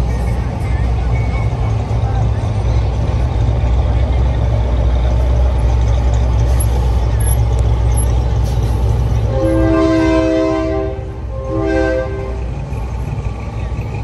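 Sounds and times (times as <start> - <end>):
truck diesel engine rumbling: 0.0 - 14.0
air horn blast: 9.2 - 12.5.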